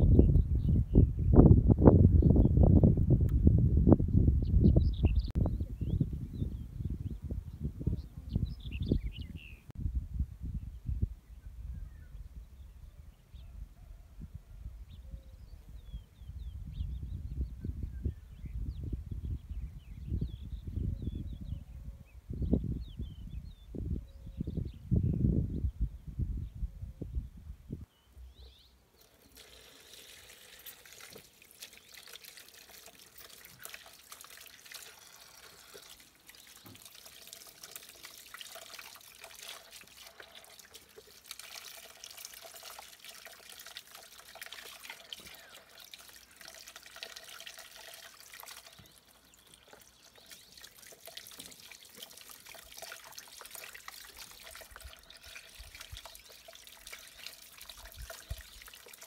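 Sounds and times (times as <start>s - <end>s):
water splashing in a basin: 29.0s - 59.0s
water trickling from a hose: 29.0s - 59.0s.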